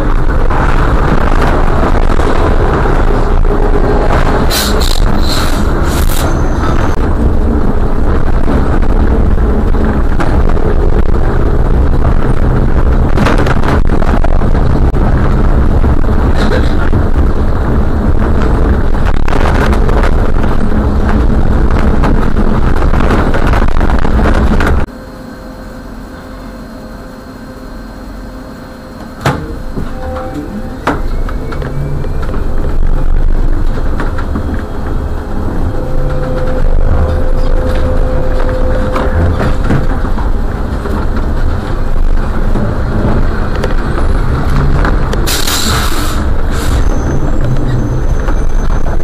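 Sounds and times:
car road noise from inside: 0.0s - 24.9s, 29.0s - 49.0s.

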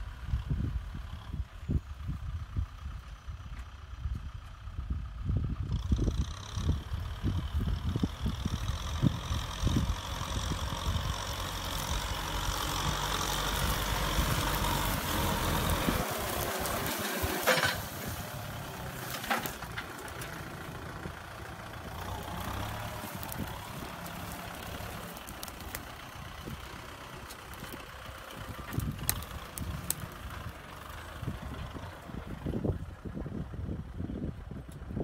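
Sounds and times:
tractor diesel engine: 0.0s - 35.0s
plow discs scraping soil: 5.9s - 33.3s.

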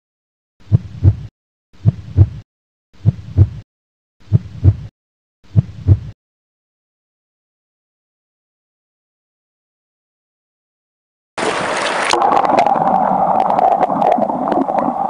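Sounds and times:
heartbeat double thumps: 0.6s - 2.4s, 3.0s - 3.6s, 4.2s - 4.9s, 5.5s - 6.2s.

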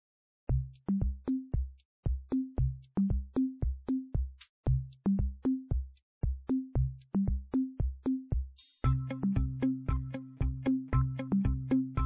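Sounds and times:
electronic music with drum-machine beat: 0.5s - 12.0s
high ticks: 0.7s - 7.6s.

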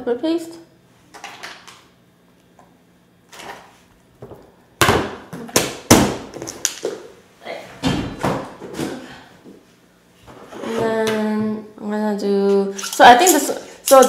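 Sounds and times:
metal spoon scraping ceramic bowl: 12.7s - 14.0s.

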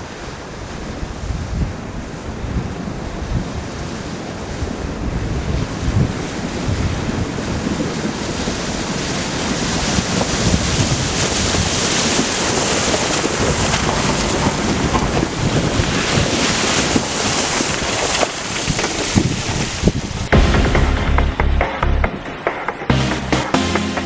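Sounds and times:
wind buffeting microphone: 0.3s - 20.4s
rushing noise: 20.1s - 24.0s.

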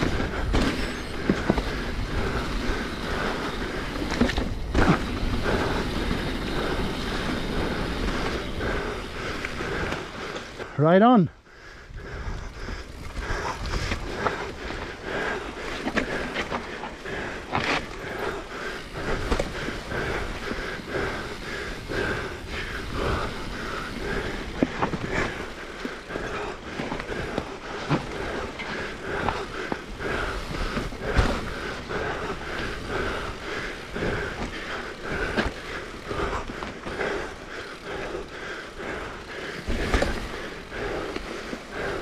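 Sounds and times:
bike knocks and rattles: 0.0s - 10.6s, 19.0s - 20.3s, 26.4s - 33.2s, 39.6s - 41.3s
bike tyres rolling over dirt: 0.0s - 42.0s.

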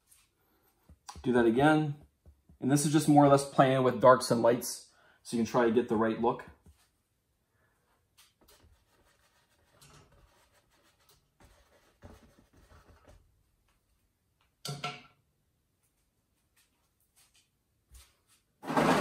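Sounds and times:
paintbrush scratching on canvas: 8.2s - 13.2s.

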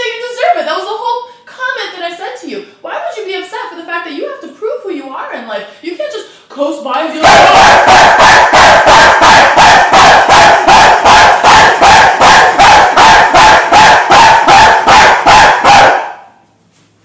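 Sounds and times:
man barking like a dog: 7.2s - 16.3s.

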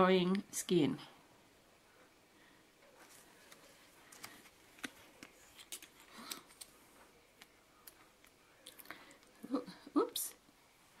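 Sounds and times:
soft handling noises: 1.9s - 9.4s.

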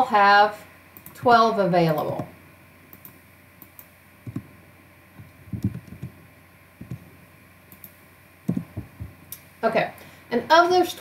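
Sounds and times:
keyboard and mouse clicks: 2.9s - 4.5s, 5.2s - 6.2s, 6.8s - 7.1s, 7.7s - 8.9s.

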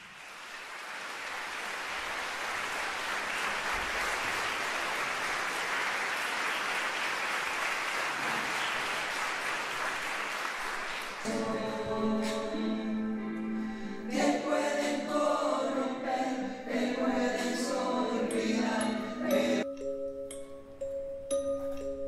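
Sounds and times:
audience applause: 0.0s - 11.4s.

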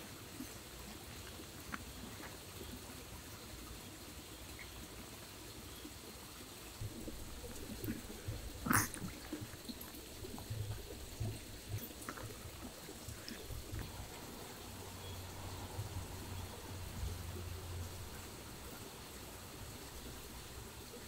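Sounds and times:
dogs chewing and licking: 6.8s - 14.4s.

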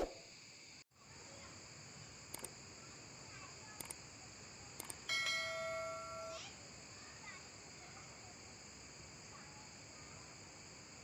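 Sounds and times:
high drone of insects: 0.0s - 11.0s
mouse clicks: 2.3s - 2.5s
bright bell-like chime: 5.1s - 6.4s.

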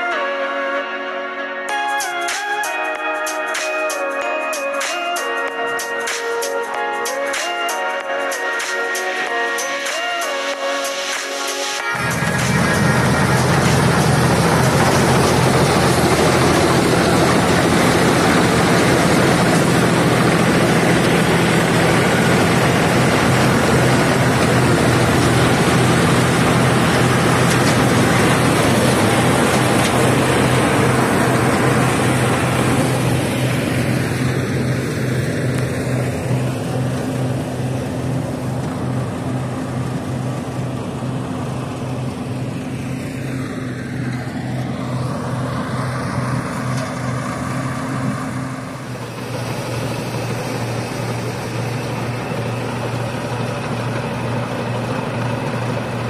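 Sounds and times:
tractor engine running under load: 11.8s - 56.0s.

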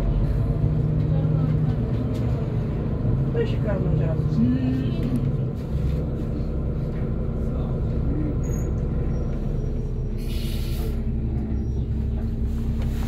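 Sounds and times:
bus engine humming: 0.0s - 13.0s
air brakes hissing: 10.1s - 11.8s.

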